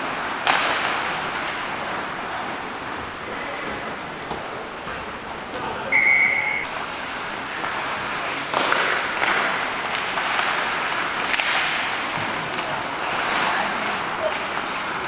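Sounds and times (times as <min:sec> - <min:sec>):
skates scraping on ice: 0:00.0 - 0:05.0, 0:06.6 - 0:15.0
sticks and puck clacking: 0:00.0 - 0:15.0
referee's whistle blast: 0:05.9 - 0:06.7.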